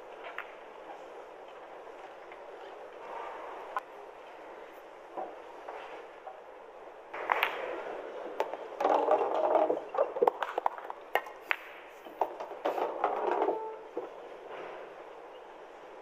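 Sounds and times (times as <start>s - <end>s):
pool balls clicking: 7.2s - 14.4s.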